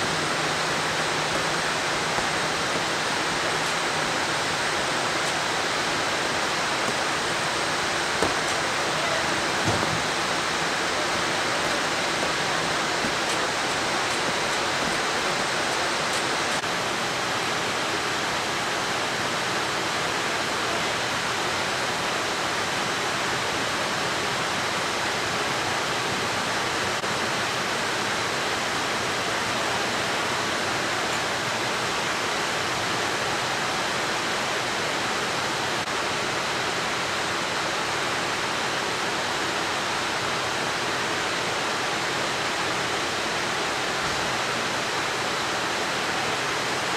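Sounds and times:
machinery rushing noise: 0.0s - 16.8s
faint high whine: 0.0s - 46.9s.

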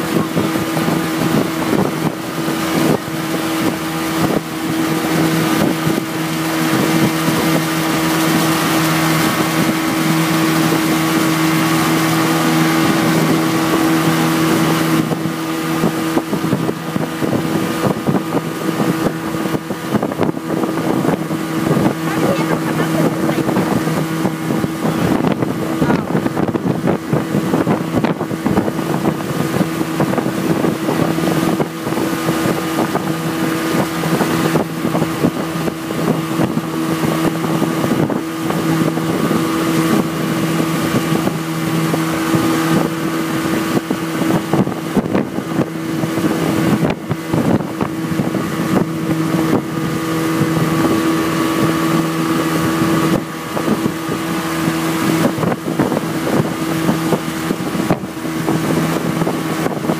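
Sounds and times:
churning wake rushing: 0.0s - 59.9s
motorboat engine humming: 0.0s - 59.9s
wind buffeting microphone: 0.0s - 59.9s.

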